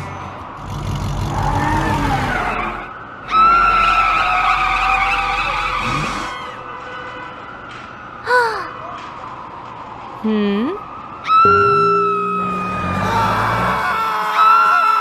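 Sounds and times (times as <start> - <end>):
tyre squeal skid: 1.5 - 6.7, 11.4 - 15.0
cartoon car engine rumble: 11.5 - 14.1.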